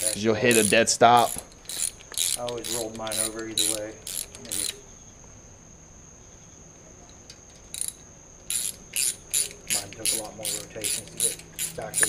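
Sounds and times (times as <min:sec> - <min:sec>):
ratchet wrench clicking: 0:00.0 - 0:04.8, 0:07.6 - 0:12.0
crickets chirring: 0:00.0 - 0:12.0.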